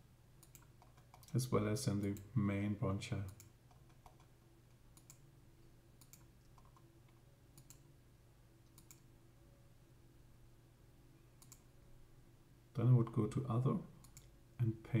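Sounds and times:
low steady hum: 0:00.0 - 0:15.0
computer mouse clicks: 0:00.4 - 0:01.4, 0:03.3 - 0:04.3, 0:04.9 - 0:05.2, 0:06.0 - 0:07.8, 0:08.6 - 0:09.1, 0:11.4 - 0:11.7, 0:14.0 - 0:14.3.

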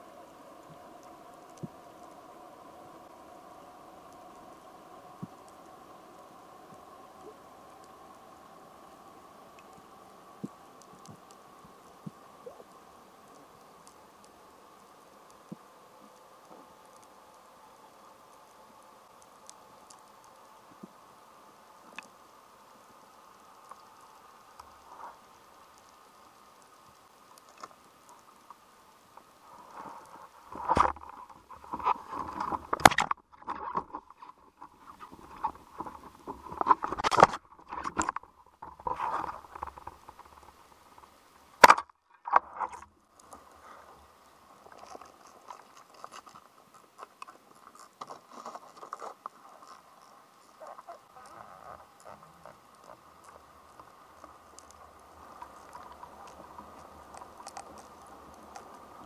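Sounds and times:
crackling hiss: 0:00.0 - 0:59.0
underwater knocks and scrapes: 0:29.6 - 0:43.8.

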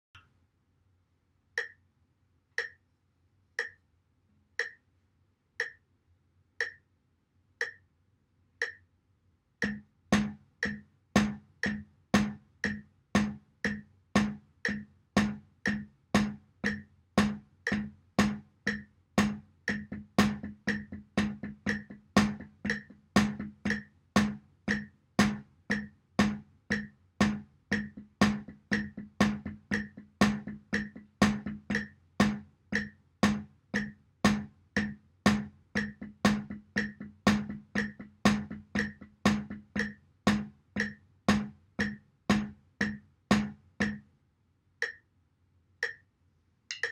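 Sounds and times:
metronome clicking: 0:01.6 - 0:01.8, 0:02.6 - 0:02.8, 0:03.6 - 0:03.8, 0:04.6 - 0:04.8, 0:05.6 - 0:05.8, 0:06.6 - 0:06.8, 0:07.6 - 0:07.9, 0:08.6 - 0:08.9, 0:09.6 - 0:44.1, 0:44.8 - 0:45.1, 0:45.8 - 0:46.1, 0:46.7 - 0:46.9
drumsticks on padded snare drum: 0:09.6 - 0:44.0.

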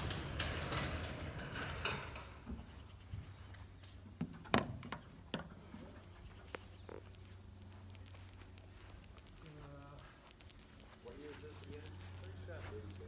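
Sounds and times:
garage door rattling and rumbling: 0:00.0 - 0:02.8.

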